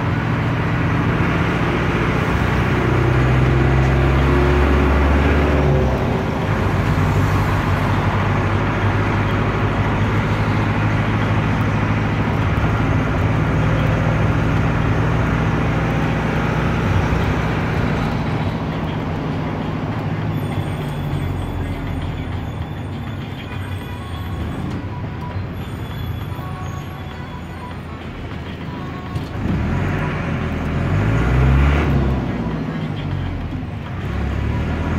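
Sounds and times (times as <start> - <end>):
diesel engine running: 0.0 - 34.9
road noise: 0.0 - 34.9.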